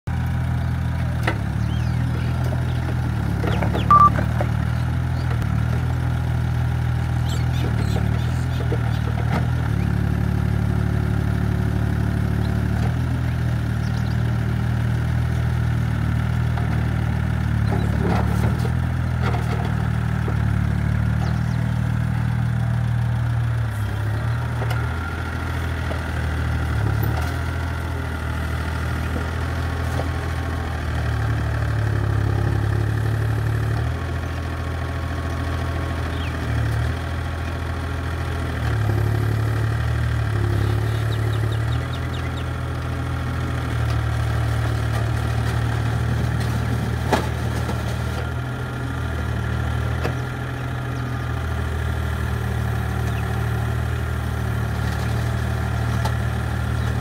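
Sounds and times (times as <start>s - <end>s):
excavator diesel engine running: 0.1s - 57.0s
short high beep: 3.9s - 4.2s.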